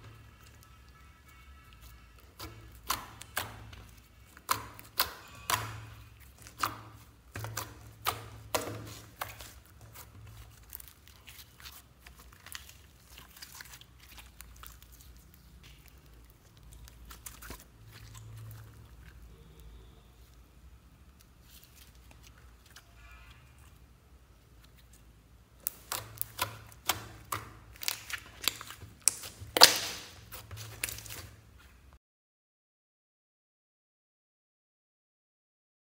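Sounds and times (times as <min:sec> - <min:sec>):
slime popping and clicking: 0:02.2 - 0:10.0, 0:25.6 - 0:31.2.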